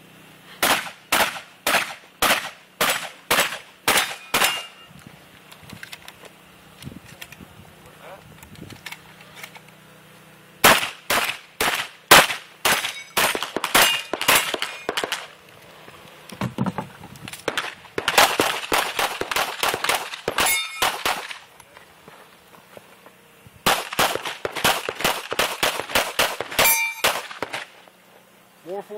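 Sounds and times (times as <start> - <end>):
shotgun shots: 0.6 - 4.8, 10.6 - 15.3, 17.4 - 21.4, 23.6 - 27.8
hits ringing off steel targets: 0.6 - 4.9, 10.6 - 15.2, 17.5 - 21.4, 23.8 - 27.7.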